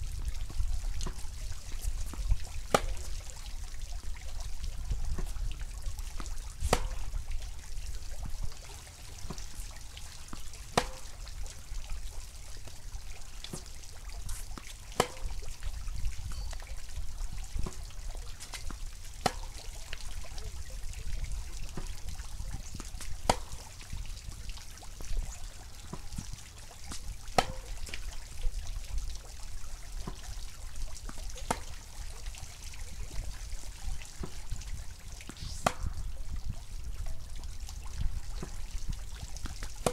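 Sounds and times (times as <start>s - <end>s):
ball bouncing and hit knocks: 0.5s - 3.2s, 5.1s - 5.5s, 6.2s - 7.2s, 9.2s - 11.4s, 13.4s - 14.0s, 14.6s - 15.6s, 17.6s - 19.8s, 21.7s - 22.1s, 22.7s - 23.7s, 25.8s - 28.1s, 31.1s - 31.9s, 34.2s - 34.4s, 35.2s - 36.1s, 39.4s - 39.9s
tennis ball struck by racket: 2.0s - 3.1s, 5.2s - 5.4s, 6.6s - 7.2s, 10.3s - 11.3s, 14.3s - 15.4s, 17.6s - 19.6s, 23.0s - 23.6s, 26.9s - 28.0s, 31.4s - 31.9s, 35.2s - 36.1s.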